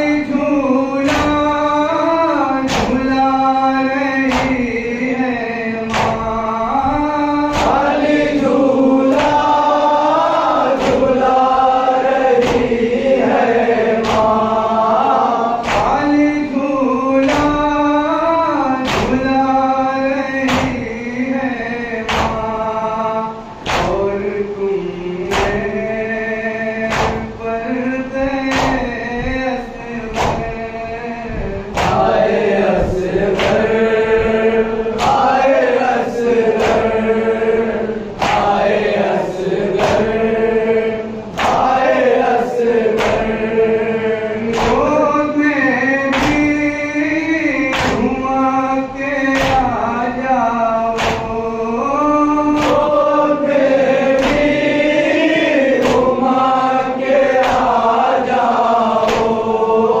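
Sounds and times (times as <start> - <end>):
lead reciter: 0.0 - 60.0
men chanting in unison: 0.0 - 60.0
hand slaps on chest: 23.6 - 24.0, 25.3 - 25.6, 26.9 - 27.2, 46.1 - 46.5, 51.0 - 51.3, 54.2 - 54.6, 59.0 - 59.4.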